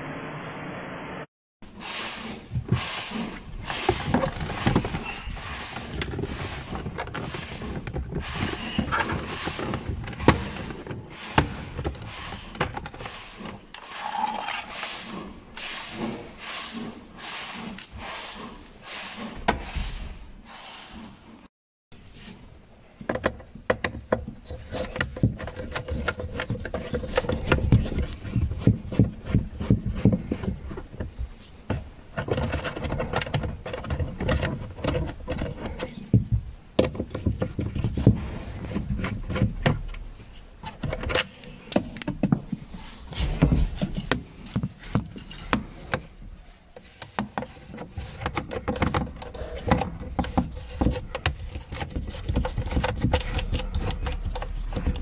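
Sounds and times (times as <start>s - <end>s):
screwdriver scraping on plastic: 46.8s - 55.0s.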